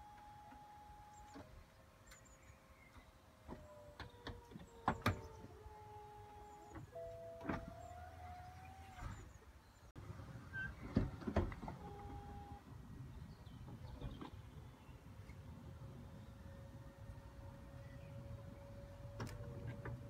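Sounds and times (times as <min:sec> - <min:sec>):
power windows whirring: 0:03.4 - 0:09.4, 0:11.0 - 0:12.6, 0:18.2 - 0:20.0
roof motors whining: 0:03.4 - 0:09.4, 0:15.8 - 0:20.0.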